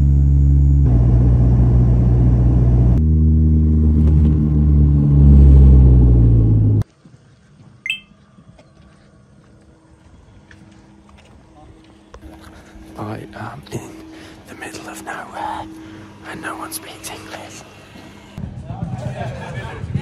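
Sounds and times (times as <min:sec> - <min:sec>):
propeller and engine drone: 0:00.0 - 0:06.8, 0:10.2 - 0:18.6
brief high chirp: 0:07.9 - 0:08.2.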